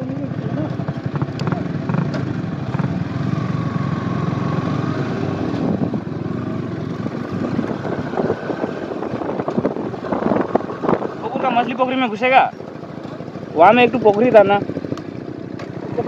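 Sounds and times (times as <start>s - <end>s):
motorcycle engine running: 0.0s - 16.0s
wind noise: 3.6s - 12.7s.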